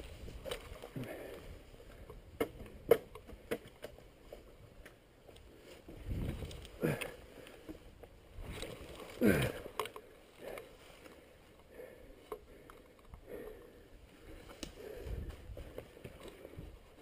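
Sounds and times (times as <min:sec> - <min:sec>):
rustling grass: 0:00.0 - 0:02.3, 0:04.0 - 0:12.9
man groaning with effort: 0:09.2 - 0:09.7.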